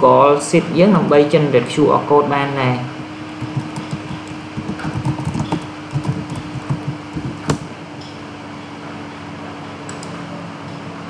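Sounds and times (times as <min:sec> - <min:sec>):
steady fan hum: 0:00.0 - 0:11.0
typing on computer keyboard: 0:03.3 - 0:07.6.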